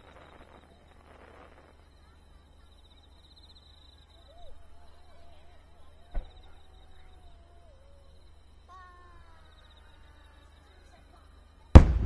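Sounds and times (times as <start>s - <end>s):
faint falling voice-like calls: 0.0s - 12.0s
faint insects: 0.0s - 12.0s
firework bang: 6.1s - 6.6s, 11.8s - 12.0s.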